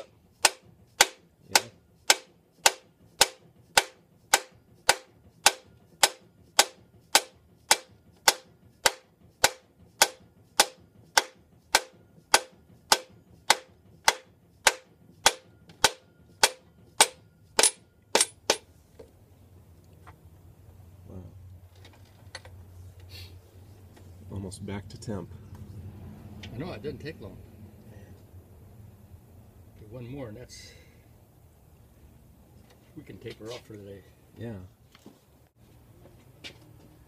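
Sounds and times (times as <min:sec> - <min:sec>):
mallet striking steel driver: 0:00.4 - 0:18.7.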